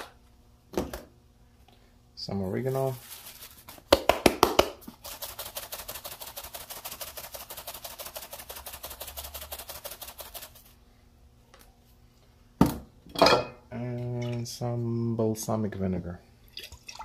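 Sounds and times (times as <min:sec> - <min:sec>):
spice shaker rattling: 0:02.9 - 0:04.1, 0:04.8 - 0:10.8.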